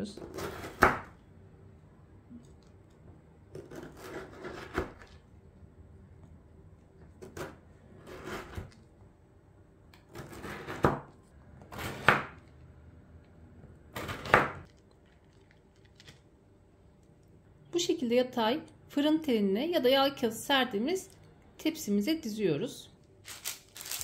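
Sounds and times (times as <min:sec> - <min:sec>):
knife rasping through biscotti: 0:03.6 - 0:05.0.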